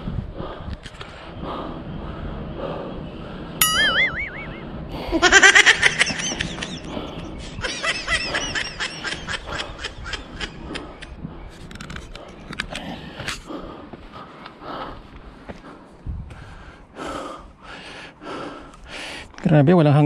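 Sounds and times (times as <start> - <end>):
warbling wobbling tone: 3.6 - 4.9
high-pitched laughter: 5.0 - 6.9, 7.5 - 10.7.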